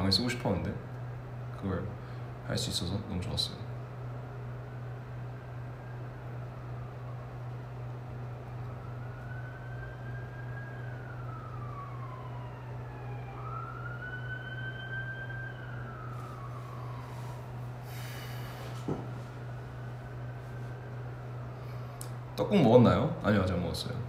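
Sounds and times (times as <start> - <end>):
faint siren wailing: 0.0 - 24.0
steady low hum: 0.0 - 24.0.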